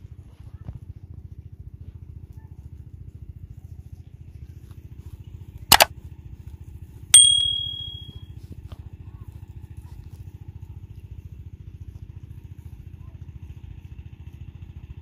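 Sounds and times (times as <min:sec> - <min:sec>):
notification bell ding: 0:07.2 - 0:08.2.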